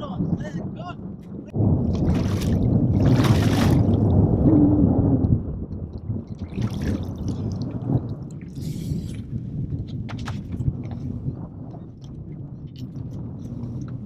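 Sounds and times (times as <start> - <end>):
water splashing beside boat: 1.8 - 4.3, 5.8 - 9.2
water dripping and sloshing: 1.8 - 4.5, 5.2 - 14.0.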